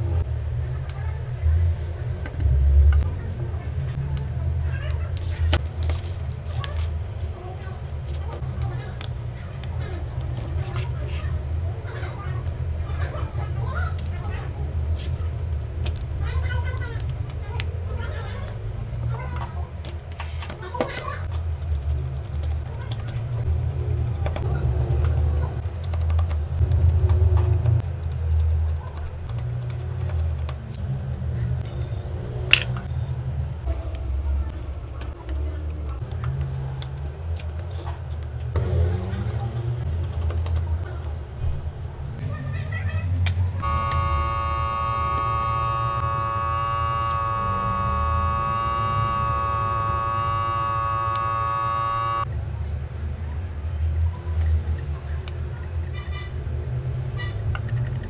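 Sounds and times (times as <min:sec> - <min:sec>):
vacuum pump buzzing: 0:43.6 - 0:52.3
screwdriver clicking on tiny screws: 0:53.9 - 0:58.0.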